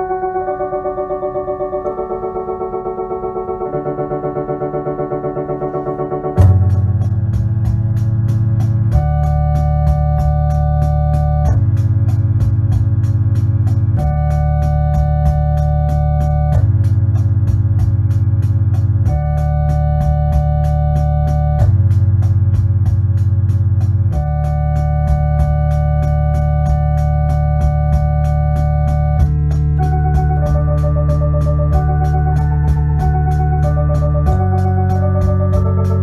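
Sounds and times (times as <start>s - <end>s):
electronic organ chords: 0.0s - 36.0s
steady ticking rhythm: 0.0s - 36.0s.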